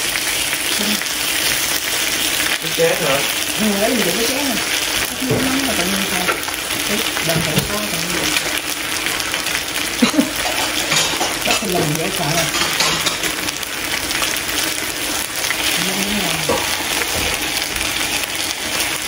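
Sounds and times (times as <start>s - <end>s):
beef sizzling: 0.0s - 19.0s
low voices talking: 2.6s - 8.6s, 15.7s - 16.8s.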